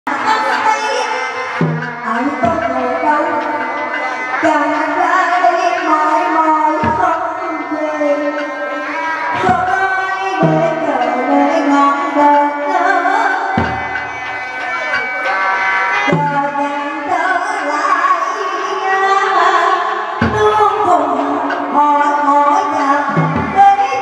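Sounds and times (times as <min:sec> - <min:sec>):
sliding opera melody: 0:00.1 - 0:24.0
low drum strokes: 0:01.6 - 0:04.8, 0:09.4 - 0:11.2.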